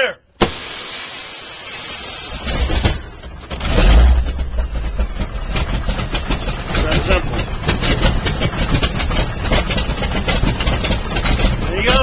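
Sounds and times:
compressed air starter hiss: 0:00.4 - 0:03.0
radial engine starting: 0:00.5 - 0:12.0.

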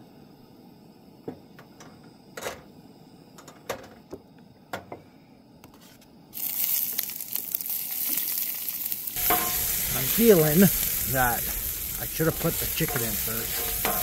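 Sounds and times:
vegetables sizzling in frying pan: 0:06.3 - 0:14.0.

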